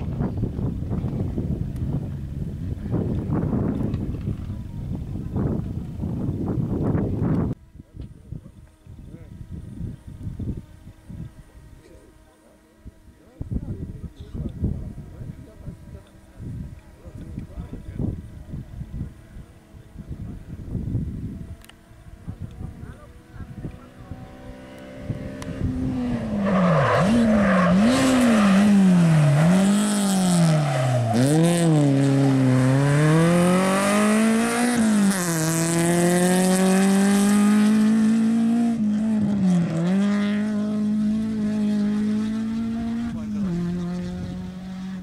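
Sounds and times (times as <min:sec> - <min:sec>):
rally car engine revving: 0:21.6 - 0:45.0.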